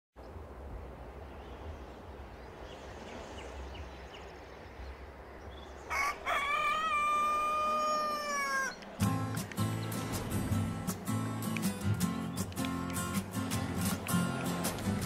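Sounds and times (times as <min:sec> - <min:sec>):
rooster crowing: 0:05.9 - 0:08.8.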